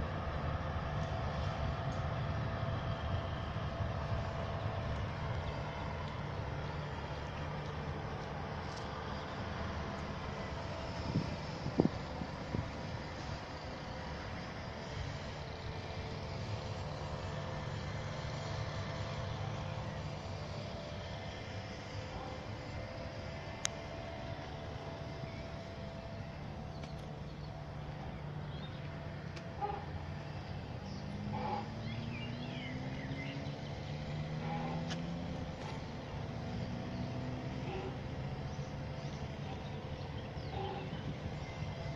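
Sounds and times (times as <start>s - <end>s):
faint steady tones: 0.0s - 41.9s
road traffic rumble: 0.0s - 41.9s
birds chirping: 23.7s - 41.9s.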